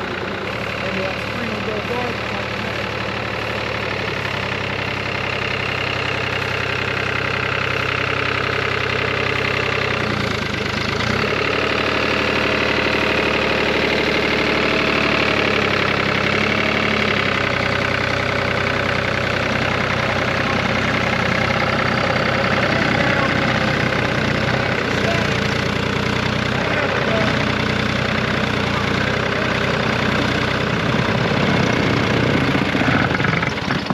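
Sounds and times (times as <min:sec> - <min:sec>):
tractor diesel engine running: 0:00.0 - 0:33.9.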